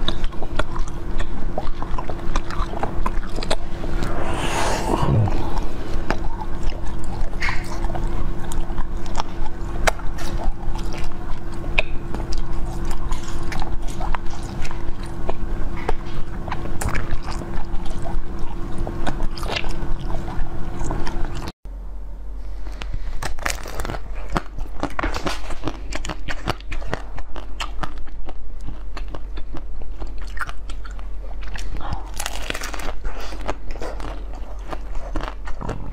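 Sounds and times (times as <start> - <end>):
steady low hum: 0.0 - 23.0
chewing hard ice crunches: 23.4 - 35.9.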